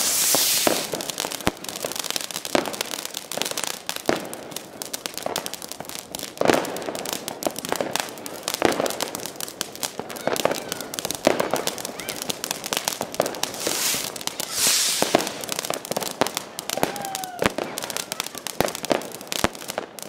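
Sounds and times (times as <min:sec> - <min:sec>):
rushing hiss: 0:00.0 - 0:01.0, 0:13.4 - 0:15.6
fireworks fountain crackling: 0:00.0 - 0:20.0.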